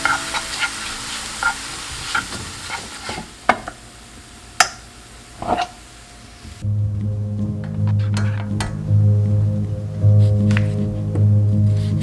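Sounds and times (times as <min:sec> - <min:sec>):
wooden spatula scraping a pan: 0:00.0 - 0:03.4
mushrooms sizzling in a frying pan: 0:00.0 - 0:06.6.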